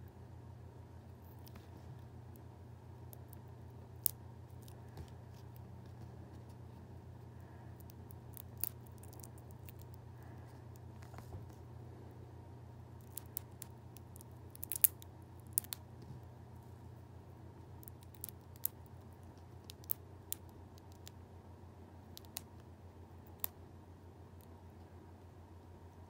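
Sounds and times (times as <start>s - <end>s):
low steady hum: 0.0s - 26.0s
seed pod crackling open: 3.1s - 5.6s, 7.8s - 10.0s, 13.0s - 15.8s, 17.8s - 21.2s.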